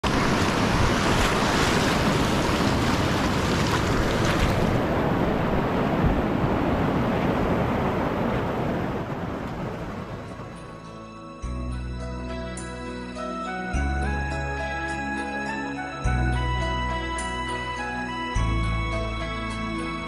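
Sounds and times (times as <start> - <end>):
whitewater rushing around kayak: 0.0 - 10.6.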